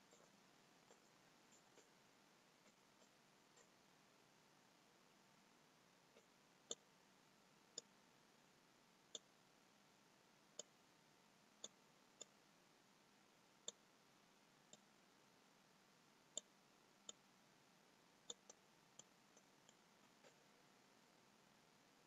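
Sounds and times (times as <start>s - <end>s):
computer mouse clicks: 13.6s - 13.8s, 18.2s - 20.5s.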